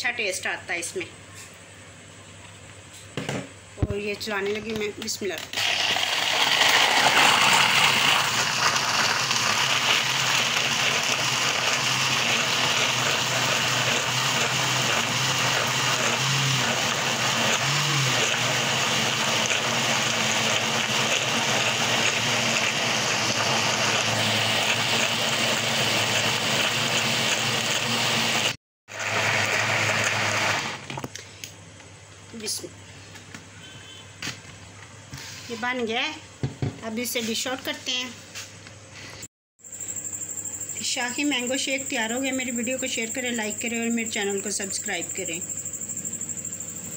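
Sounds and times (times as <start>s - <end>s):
blender running: 5.5s - 31.0s.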